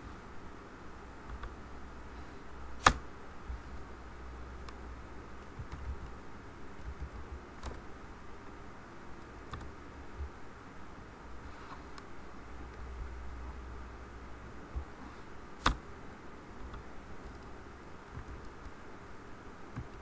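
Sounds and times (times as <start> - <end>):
low steady hum: 0.0 - 20.0
keyboard keystrokes: 5.4 - 6.2, 6.8 - 7.8, 9.5 - 9.7.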